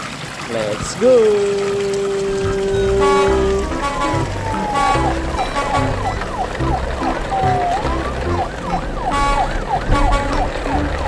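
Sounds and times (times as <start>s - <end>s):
background music with bass: 2.4s - 8.8s, 9.4s - 11.0s
electronic siren sweeps: 2.6s - 11.0s.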